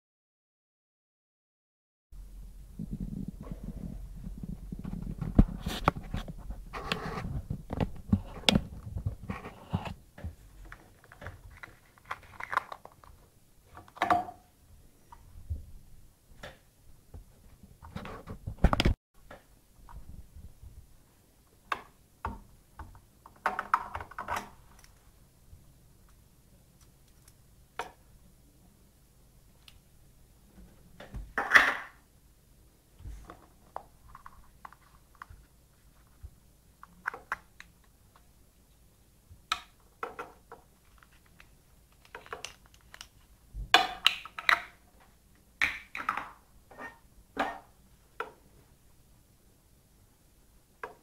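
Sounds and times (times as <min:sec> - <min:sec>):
low rumble: 0:02.2 - 0:05.6.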